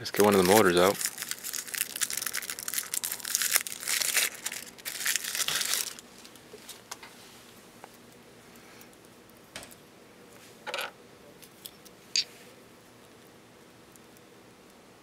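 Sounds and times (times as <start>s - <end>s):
packaging rustling and crackling: 0.0s - 6.8s.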